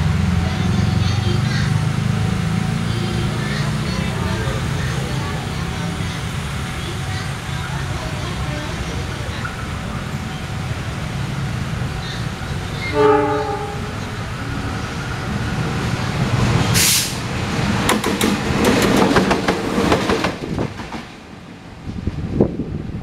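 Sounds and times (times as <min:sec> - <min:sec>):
wheels clattering on rails: 0:00.0 - 0:21.4
train rumble: 0:00.0 - 0:23.0
train horn blast: 0:12.8 - 0:14.2
brief hiss: 0:16.8 - 0:17.2.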